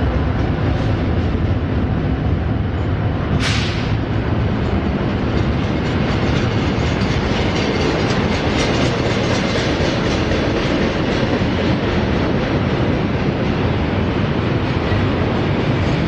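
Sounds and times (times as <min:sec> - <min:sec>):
freight train rolling past: 0:00.0 - 0:16.0.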